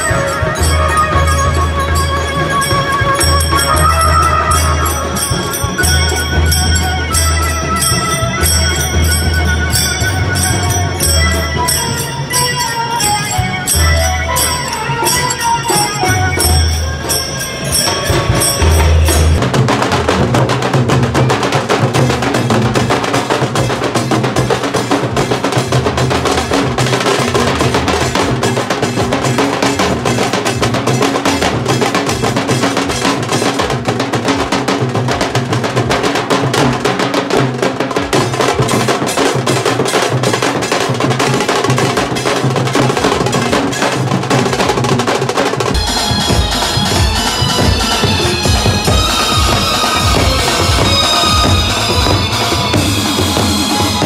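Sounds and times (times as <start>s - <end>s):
band music with held tones: 0.0s - 20.0s, 45.5s - 54.0s
drums beaten with sticks: 0.0s - 54.0s.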